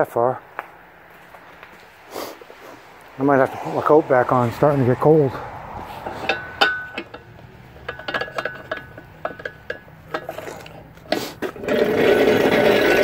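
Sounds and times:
metal chain clinking: 0:06.1 - 0:11.0.

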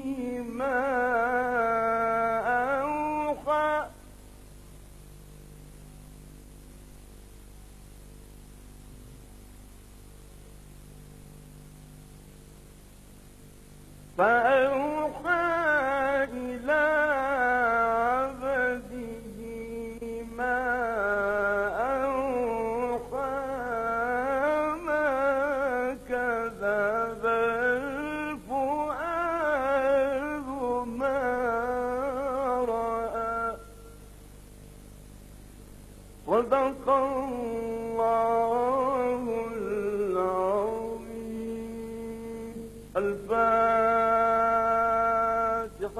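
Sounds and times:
man chanting melodically: 0:00.0 - 0:04.0, 0:14.2 - 0:33.9, 0:36.3 - 0:45.9
low steady hum: 0:00.0 - 0:45.9.

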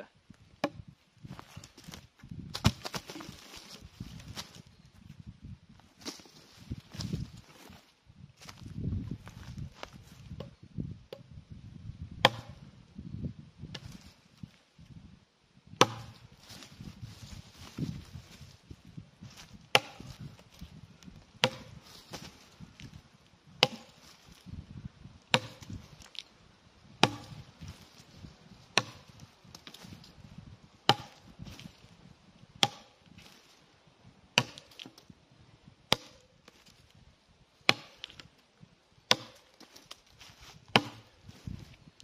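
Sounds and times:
tomahawk chopping into log: 0:12.2 - 0:12.6, 0:15.8 - 0:16.2, 0:19.7 - 0:20.2, 0:21.4 - 0:22.3, 0:23.6 - 0:24.0, 0:25.3 - 0:25.8, 0:27.0 - 0:27.4, 0:28.8 - 0:29.8, 0:30.9 - 0:31.3, 0:32.6 - 0:32.9, 0:34.4 - 0:35.0, 0:35.9 - 0:36.2, 0:37.6 - 0:38.2, 0:39.1 - 0:39.9, 0:40.7 - 0:41.1.

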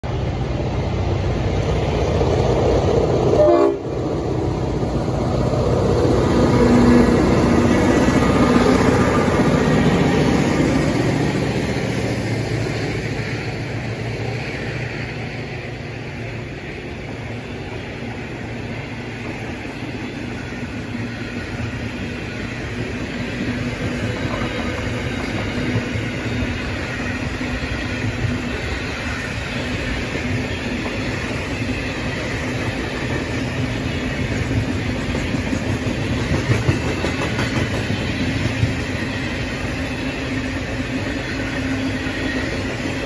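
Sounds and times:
train wheels rumbling on rail: 0:00.0 - 0:43.0
train horn blast: 0:03.2 - 0:04.1.

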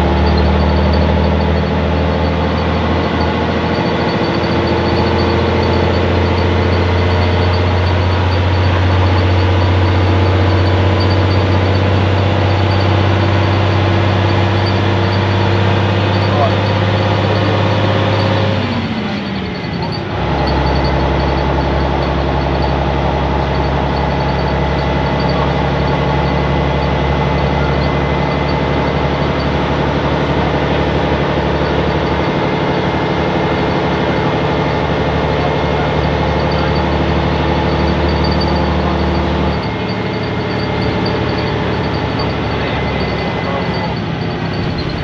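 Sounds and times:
bus diesel engine droning: 0:00.0 - 0:45.0.

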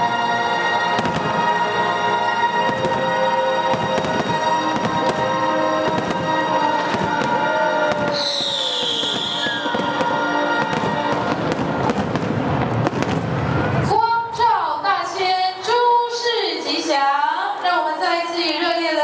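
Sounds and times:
music: 0:00.0 - 0:14.8
fireworks crackling and popping: 0:00.9 - 0:01.7, 0:02.6 - 0:14.0
firework whistle and hiss: 0:06.9 - 0:10.8.

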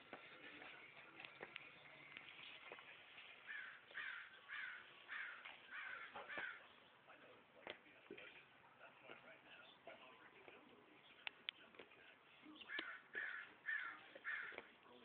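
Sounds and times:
crow cawing: 0:03.5 - 0:06.6, 0:12.7 - 0:14.7.

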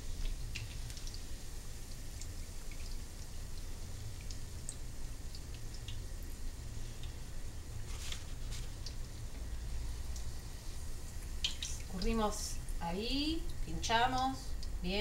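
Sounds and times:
oil crackling and popping: 0:00.0 - 0:12.0
low steady rumble: 0:00.0 - 0:15.0.

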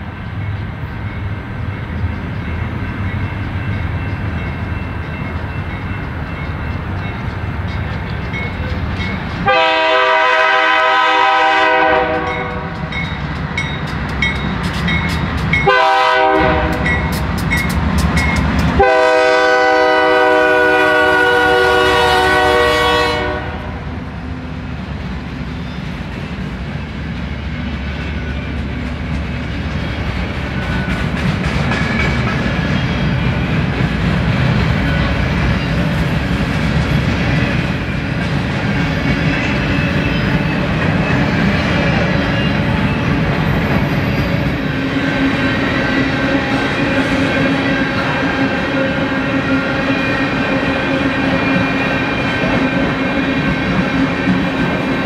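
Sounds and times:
train rumbling on track: 0:00.0 - 0:55.0
locomotive air horn blasts: 0:09.4 - 0:12.8, 0:15.6 - 0:17.1, 0:18.8 - 0:23.9.

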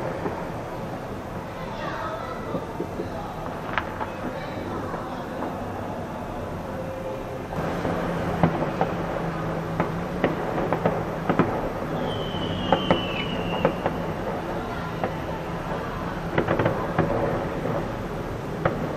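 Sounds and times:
background rumble: 0:00.0 - 0:18.9
fireworks bangs and pops: 0:00.0 - 0:18.9
high falling whistle: 0:11.9 - 0:14.0.

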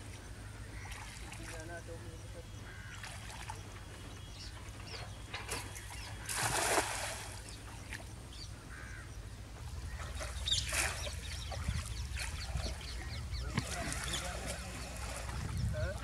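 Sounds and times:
water sloshing and dripping: 0:00.0 - 0:01.9, 0:02.9 - 0:08.2, 0:09.7 - 0:16.0
birds calling: 0:00.0 - 0:16.0
net splashing into water: 0:06.2 - 0:07.4.

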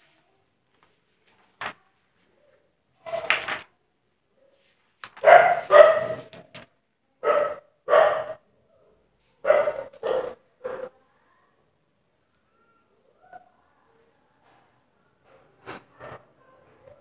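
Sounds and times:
dog barking: 0:05.2 - 0:06.3, 0:07.2 - 0:08.4, 0:09.4 - 0:11.0.

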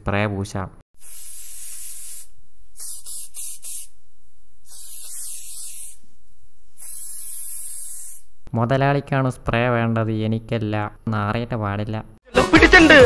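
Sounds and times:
spray can hissing: 0:01.0 - 0:08.3.

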